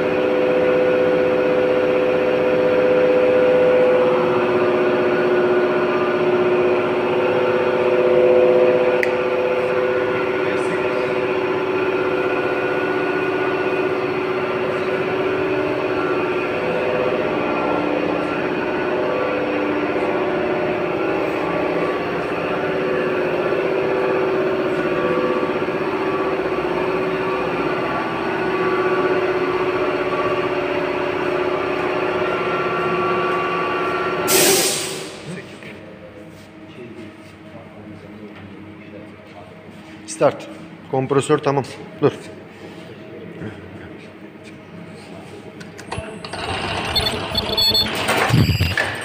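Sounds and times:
air compressor running: 0.0s - 35.4s, 45.8s - 49.0s
loud air hiss: 34.3s - 35.2s
machine drone with held tones: 45.9s - 49.0s.

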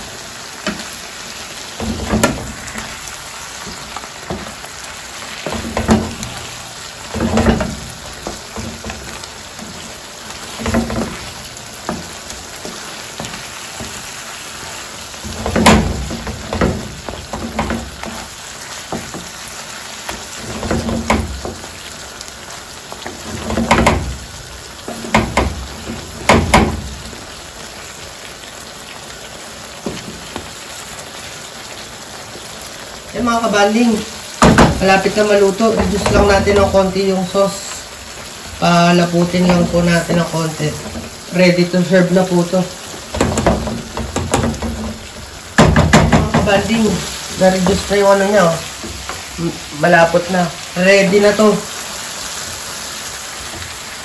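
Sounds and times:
shrimp sizzling in a frying pan: 0.0s - 54.0s
wooden spatula scraping a pan: 1.7s - 22.0s, 22.8s - 27.2s, 33.9s - 49.7s.

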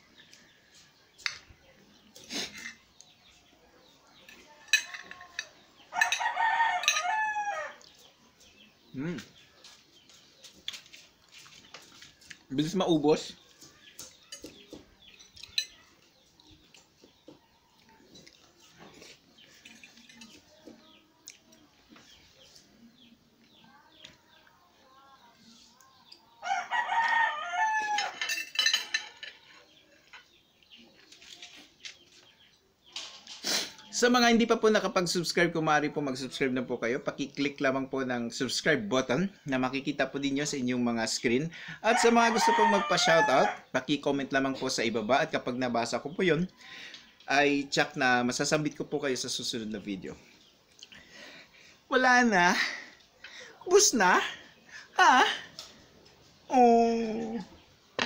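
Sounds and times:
fork clinking on plate: 4.7s - 7.2s, 28.0s - 29.6s
rooster crowing: 5.9s - 7.9s, 26.4s - 28.2s, 41.8s - 43.6s.

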